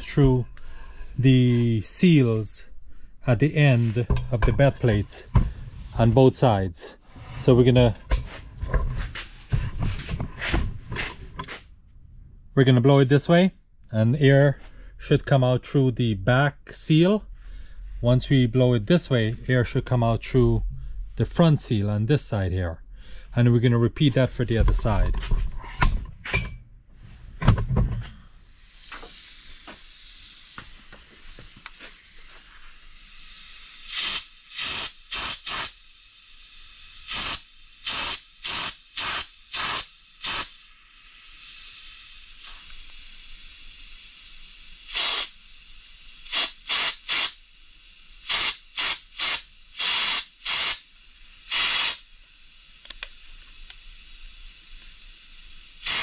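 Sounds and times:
faint steady air hiss: 0:00.0 - 0:08.4, 0:28.1 - 0:56.0
air blow gun blasts: 0:44.9 - 0:45.3, 0:46.2 - 0:47.4, 0:48.2 - 0:50.9, 0:51.5 - 0:52.0.

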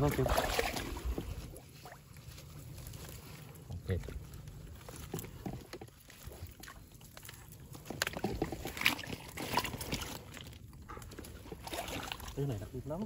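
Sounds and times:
shallow water sloshing and splashing: 0:00.0 - 0:13.0
mesh fish trap rustling and knocking: 0:04.8 - 0:10.4.

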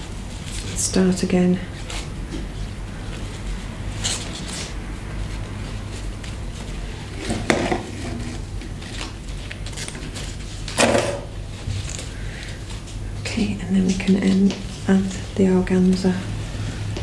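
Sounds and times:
steady low hum: 0:00.0 - 0:17.0
ribbon crinkling and rustling: 0:01.6 - 0:07.4, 0:08.3 - 0:10.8.

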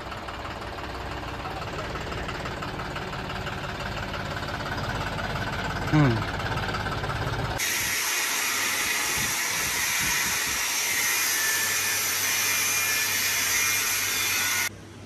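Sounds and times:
welding arc hissing: 0:07.6 - 0:14.7.

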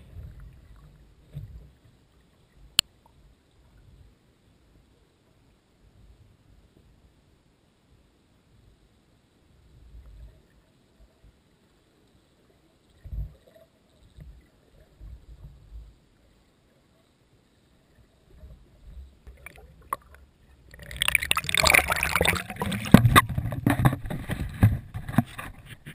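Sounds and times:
water splashing and sloshing: 0:17.8 - 0:25.9
faint low underwater thumps: 0:18.4 - 0:25.9.

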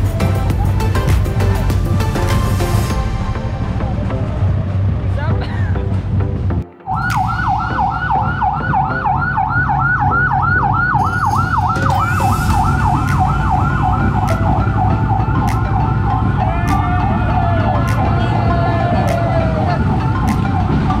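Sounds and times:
steady siren tone: 0:06.9 - 0:19.0
siren yelping: 0:06.9 - 0:21.0.

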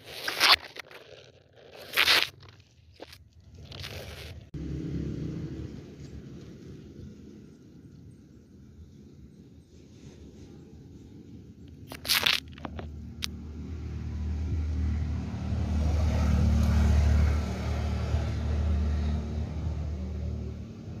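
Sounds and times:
passing vehicle engine rumble: 0:04.4 - 0:11.6, 0:12.9 - 0:21.0.

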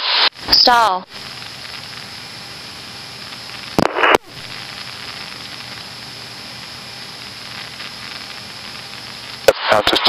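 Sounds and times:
radio static burst: 0:00.0 - 0:10.0
intercom radio hiss: 0:03.6 - 0:06.3, 0:07.2 - 0:10.0.

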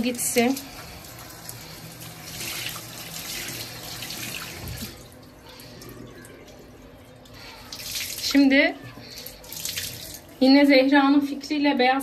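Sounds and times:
tap water running: 0:00.0 - 0:12.0
water splashing into basin: 0:09.1 - 0:10.4.

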